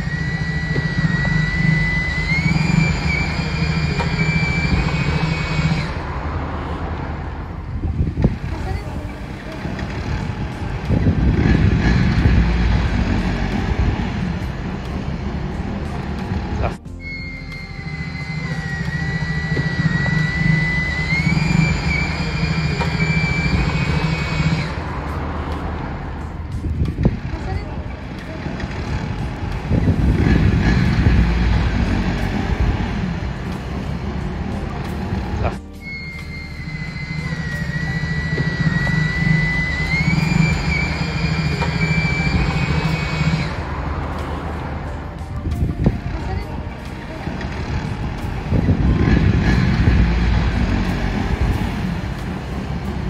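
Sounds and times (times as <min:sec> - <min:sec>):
motorbike engines running: 0:00.0 - 0:53.0
street traffic: 0:00.0 - 0:53.0.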